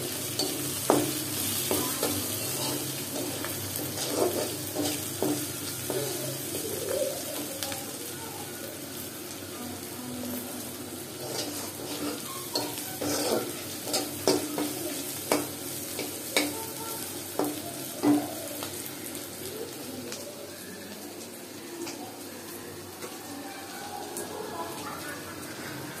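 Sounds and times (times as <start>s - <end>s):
onions sizzling in oil: 0.0s - 26.0s
spatula knocking and scraping pan: 0.3s - 6.3s, 11.2s - 16.6s.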